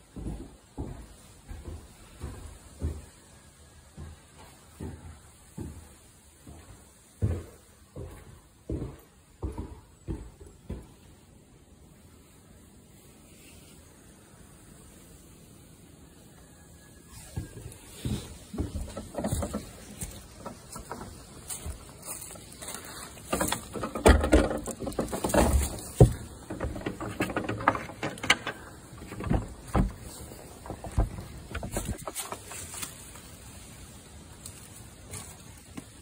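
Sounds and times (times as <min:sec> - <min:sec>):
rustling through dry leaves: 0:16.8 - 0:27.9, 0:28.5 - 0:36.0.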